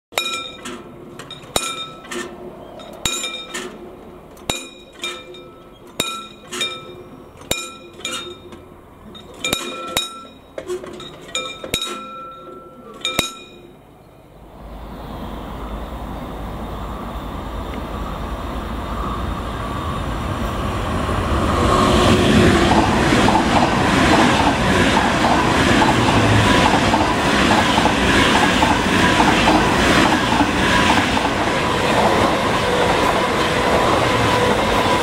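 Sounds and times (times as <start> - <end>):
level-crossing warning bell: 0.1 - 13.9
high-speed train rushing: 0.2 - 35.0.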